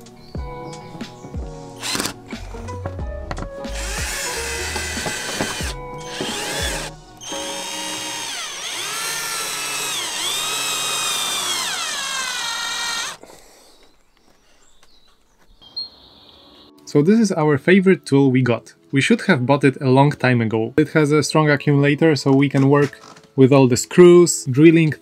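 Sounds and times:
cordless drill driving screws: 0:01.8 - 0:02.2, 0:03.7 - 0:13.2.

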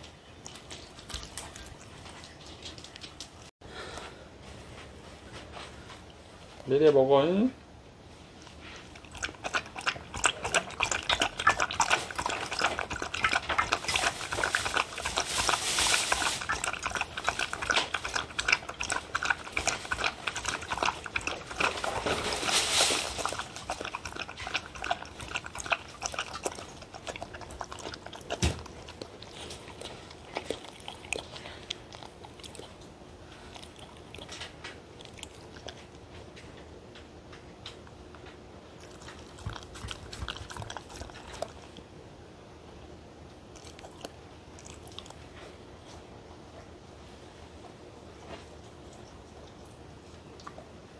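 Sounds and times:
dog lapping milk: 0:08.8 - 0:36.0, 0:38.8 - 0:41.8.

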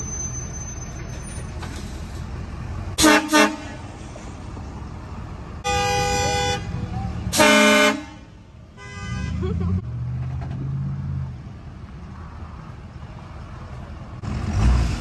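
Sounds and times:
truck engine rumble: 0:00.0 - 0:15.0
train horn blasts: 0:03.0 - 0:03.8, 0:05.6 - 0:09.4.

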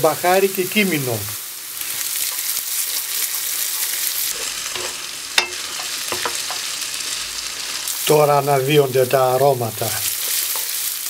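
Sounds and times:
food sizzling in frying pan: 0:00.0 - 0:11.0
utensil scraping pan: 0:02.3 - 0:06.7
utensil knocking against pan: 0:05.4 - 0:06.6.

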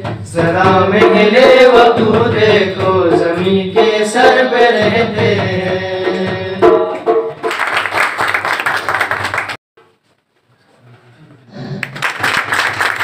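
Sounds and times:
audience applauding: 0:07.4 - 0:09.6, 0:11.8 - 0:13.0.

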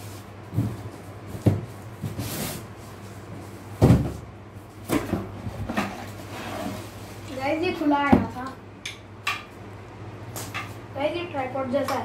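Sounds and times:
cardboard rustling scrape: 0:02.0 - 0:03.6, 0:05.6 - 0:07.3
cardboard box thumps: 0:03.8 - 0:04.2.

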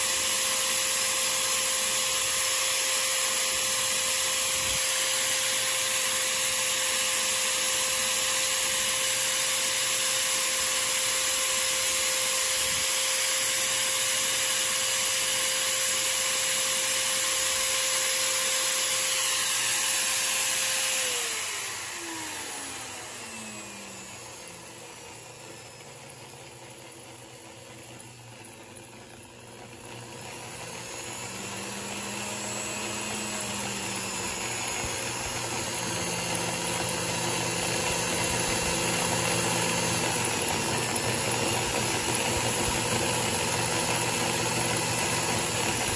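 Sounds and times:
power tool motor whine: 0:00.0 - 0:45.9.

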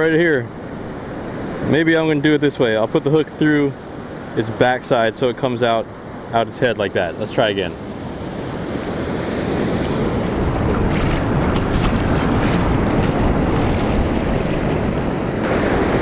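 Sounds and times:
ocean surf on beach: 0:00.0 - 0:16.0
wind rumbling on microphone: 0:07.6 - 0:16.0.

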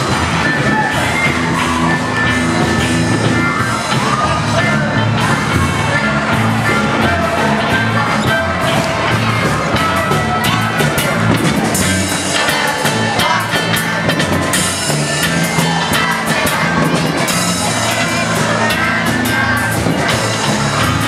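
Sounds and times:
drum kit: 0:00.0 - 0:21.0
electric bass: 0:00.0 - 0:21.0
guitar: 0:00.0 - 0:21.0.

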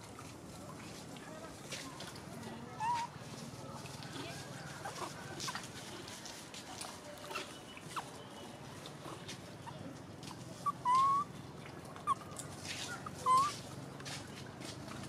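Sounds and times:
macaque coo calls: 0:02.8 - 0:03.1, 0:10.6 - 0:11.3, 0:13.0 - 0:13.5.

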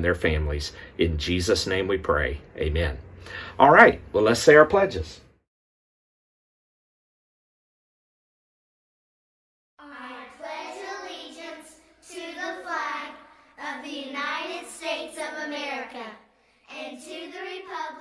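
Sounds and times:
child reciting: 0:09.8 - 0:18.0.

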